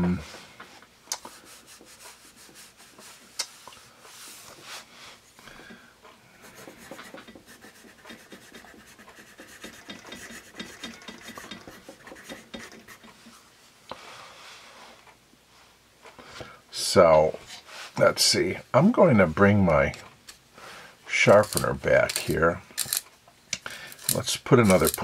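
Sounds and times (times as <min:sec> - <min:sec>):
hand brushing across paper: 0:01.2 - 0:05.2
pencil scratching on paper: 0:06.4 - 0:13.4.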